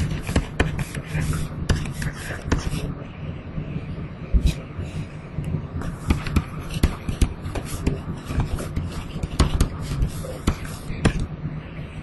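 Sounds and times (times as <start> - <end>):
steady low hum: 0.0 - 12.0
stylus tapping on tablet: 5.9 - 11.3.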